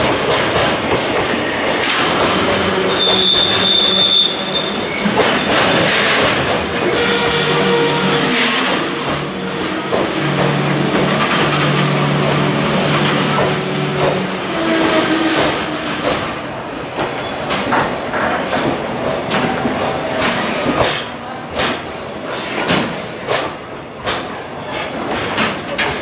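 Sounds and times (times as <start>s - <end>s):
train wagons clanking: 0.0s - 26.0s
train wheel rumble: 0.0s - 26.0s
train brakes squealing: 1.1s - 18.5s.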